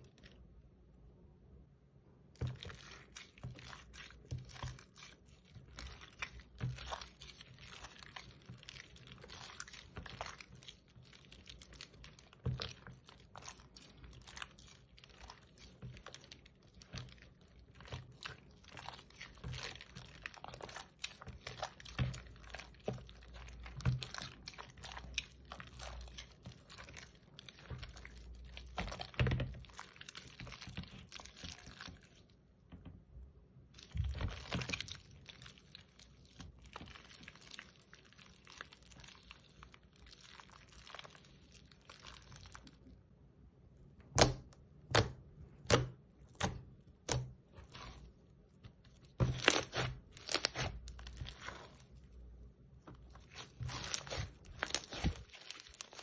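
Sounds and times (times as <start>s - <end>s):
slime crunching and crackling: 0.0s - 0.4s, 2.4s - 32.4s, 33.7s - 43.0s, 44.0s - 56.0s
slime popping: 44.1s - 52.0s, 52.9s - 56.0s.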